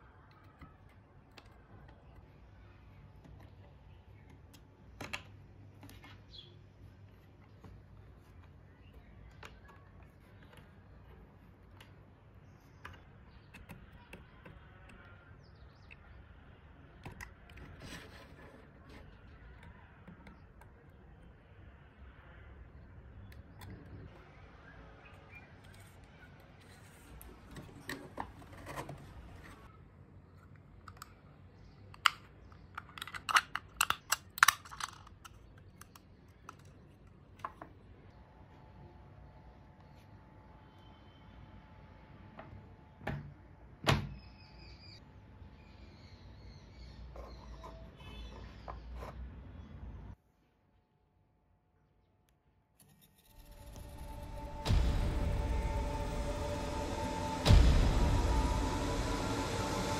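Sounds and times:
small metal parts clicking: 32.0 - 36.8
low steady hum: 53.3 - 59.9.

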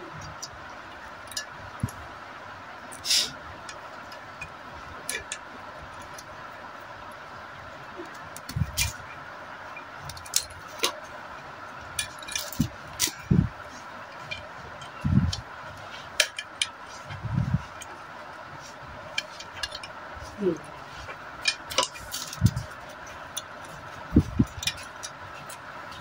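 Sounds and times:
metallic clicks and clinks: 11.8 - 15.4, 21.4 - 26.0.

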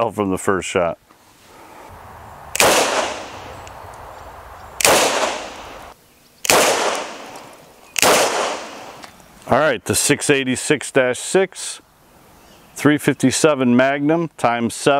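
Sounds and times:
revolver shots with echo: 2.4 - 4.1, 4.8 - 5.9, 6.5 - 9.0.

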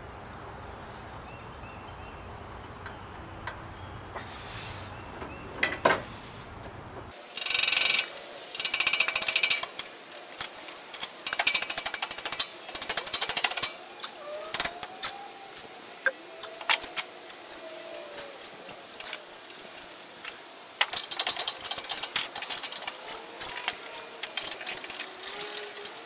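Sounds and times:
pin punch metal clicking and rattling: 7.4 - 9.8, 10.4 - 13.8, 20.8 - 26.0.

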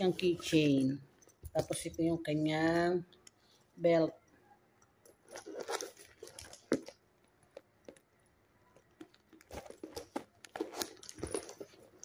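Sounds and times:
plastic wrapping crinkling: 5.1 - 8.2, 8.8 - 12.0.

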